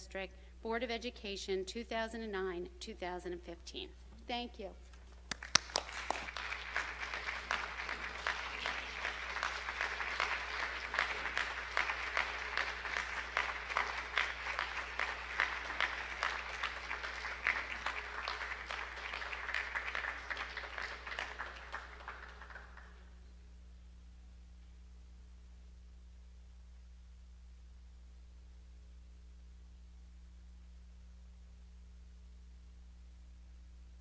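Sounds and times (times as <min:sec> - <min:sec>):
people clapping: 0:04.9 - 0:23.2.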